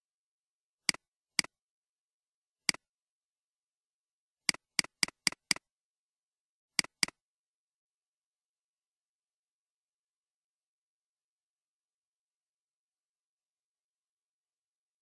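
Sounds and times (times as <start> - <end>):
mouse button clicking: 4.5 - 5.6, 6.8 - 7.2.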